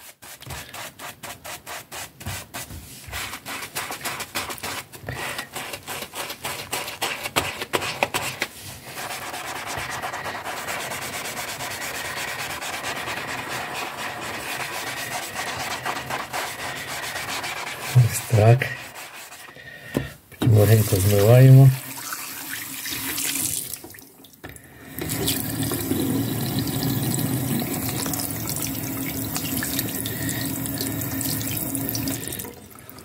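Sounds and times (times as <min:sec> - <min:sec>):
sponge scrubbing wet paper: 0:00.0 - 0:19.8, 0:20.5 - 0:23.3.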